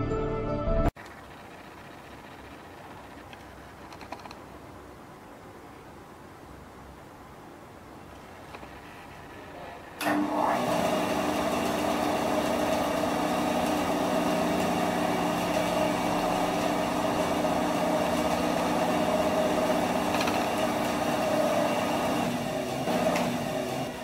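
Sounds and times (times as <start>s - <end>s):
bandsaw motor humming: 8.7s - 24.0s.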